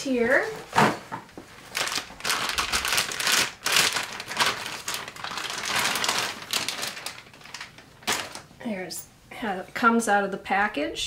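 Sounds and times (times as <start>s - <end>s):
plastic bag crinkling: 1.3s - 8.6s.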